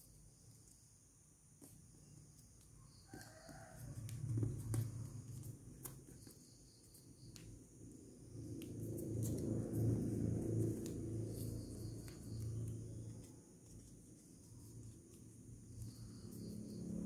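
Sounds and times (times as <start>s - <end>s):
low background rumble: 4.0s - 17.0s
paper being creased and folded: 8.6s - 16.5s.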